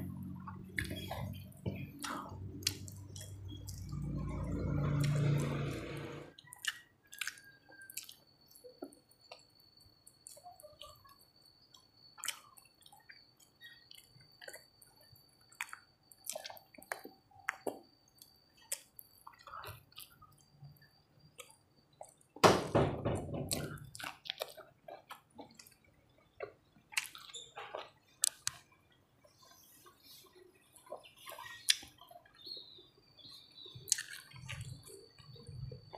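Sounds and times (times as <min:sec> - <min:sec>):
wet chewing and lip-smacking: 0:00.4 - 0:05.2, 0:06.4 - 0:20.6, 0:23.7 - 0:28.7, 0:30.7 - 0:32.4, 0:33.7 - 0:35.9.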